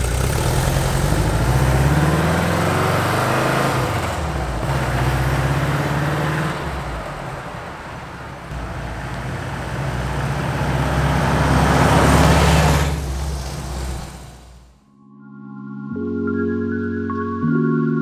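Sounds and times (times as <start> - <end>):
van engine exhaust driving by: 0.0 - 14.8.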